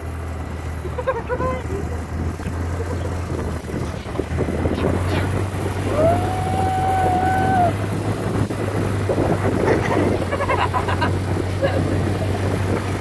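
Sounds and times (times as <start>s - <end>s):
vehicle engine drone: 0.0s - 13.0s
wind and ground noise: 0.0s - 13.0s
children shouting and laughing: 0.8s - 3.3s, 5.8s - 7.8s.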